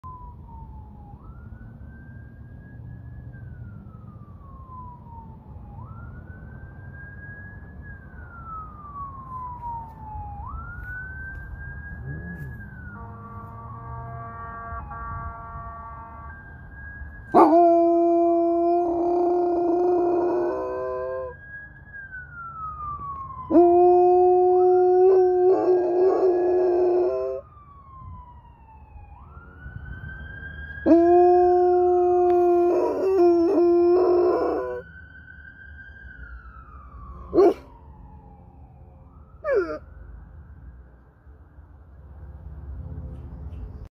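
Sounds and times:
wailing siren: 0.0s - 43.1s
dog howling: 17.4s - 21.3s, 23.5s - 27.4s, 30.9s - 34.8s, 37.3s - 37.7s, 39.4s - 39.8s.

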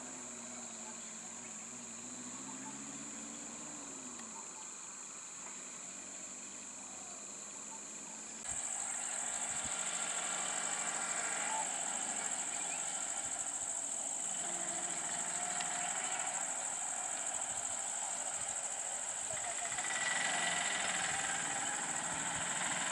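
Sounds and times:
small vehicle engine: 0.0s - 4.7s, 5.3s - 22.9s
insects shrilling: 8.4s - 22.9s.

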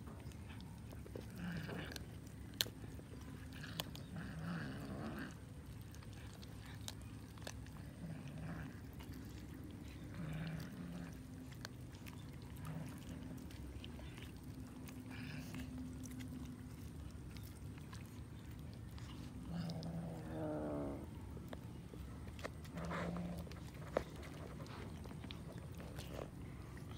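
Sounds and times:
cats chewing and crunching: 0.0s - 26.9s.

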